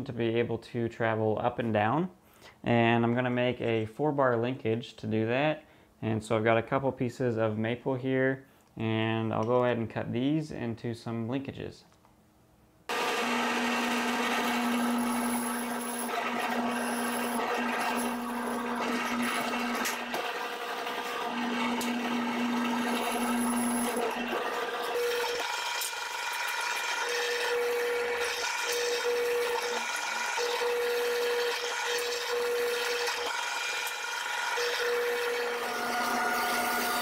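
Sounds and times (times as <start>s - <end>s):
drill boring holes in wood: 12.9s - 37.0s.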